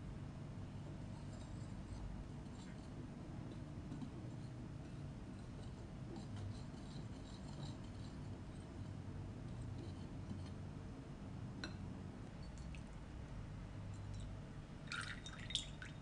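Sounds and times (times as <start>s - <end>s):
wire whisk scraping glass bowl: 5.3s - 10.6s.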